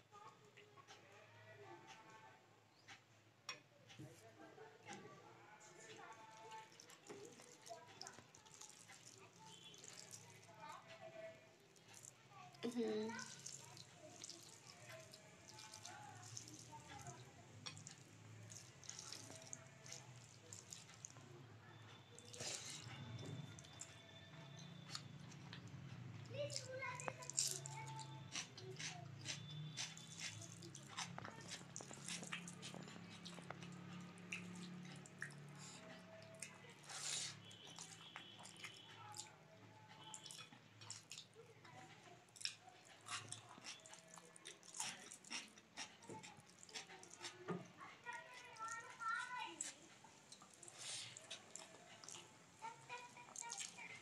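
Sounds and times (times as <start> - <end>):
chewing and lip-smacking: 5.6 - 10.9, 11.7 - 54.0
fingers squelching wet food: 6.0 - 10.6, 13.1 - 21.2, 26.5 - 39.4, 42.3 - 47.4.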